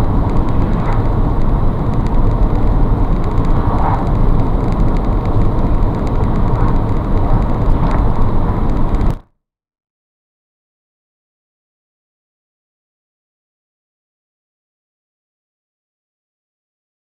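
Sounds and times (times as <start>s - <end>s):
vehicle engine and tyre noise: 0.0s - 9.2s.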